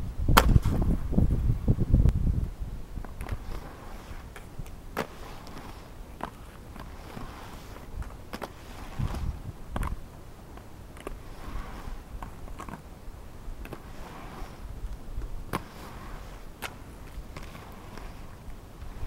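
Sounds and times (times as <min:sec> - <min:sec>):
inline skates rolling on concrete: 0:00.0 - 0:19.0
wind on microphone: 0:00.0 - 0:19.0
skates clacking on ramp: 0:03.0 - 0:12.9, 0:13.6 - 0:18.9.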